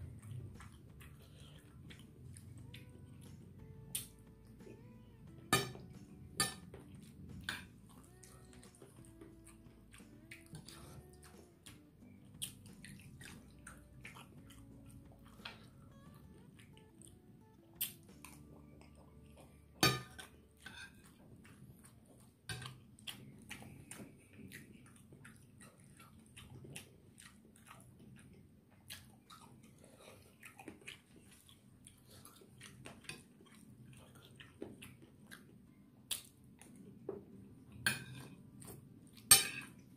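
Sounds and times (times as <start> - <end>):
mouth chewing: 0.0 - 4.9, 6.8 - 39.9
faint tune: 1.6 - 19.8.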